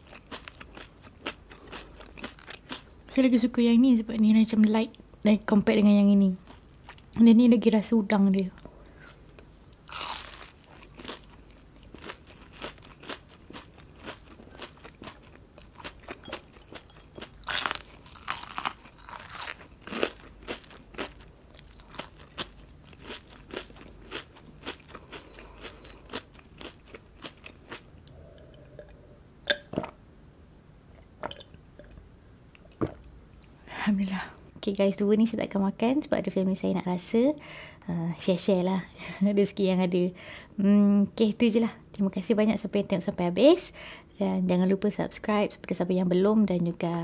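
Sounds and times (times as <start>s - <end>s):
crunching fried shrimp: 0.0s - 3.1s, 9.8s - 27.9s.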